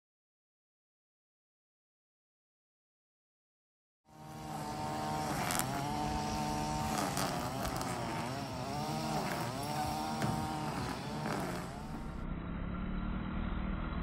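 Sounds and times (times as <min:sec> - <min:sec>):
vehicle engine running: 0:04.1 - 0:14.0.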